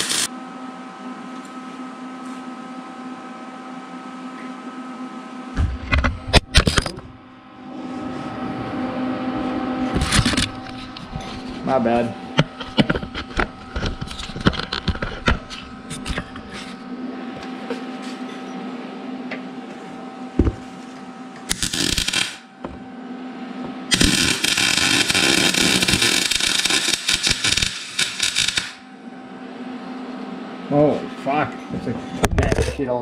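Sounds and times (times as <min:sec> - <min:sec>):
welder arc crackling: 0:00.0 - 0:00.3, 0:21.5 - 0:22.5, 0:23.9 - 0:28.9.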